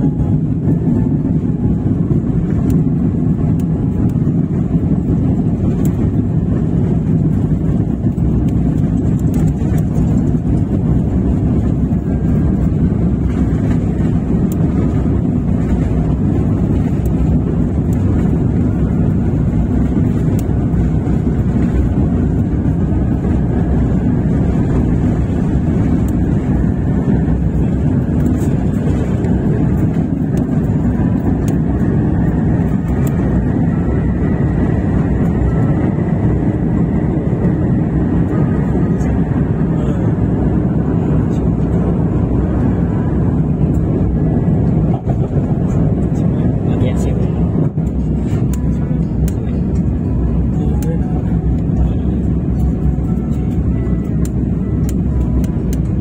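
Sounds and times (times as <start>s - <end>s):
jet engines roaring: 0.0s - 56.0s.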